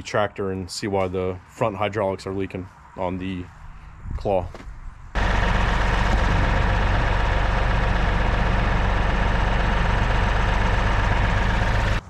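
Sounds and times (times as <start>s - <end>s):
tractor diesel engine idling: 5.2s - 12.0s.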